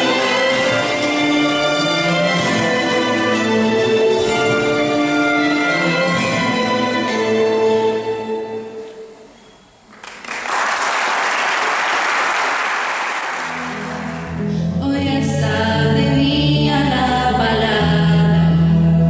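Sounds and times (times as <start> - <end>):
live band with panpipes: 0.0 - 9.2
recorded music: 0.0 - 9.3, 13.4 - 19.0
audience applauding: 9.9 - 14.4.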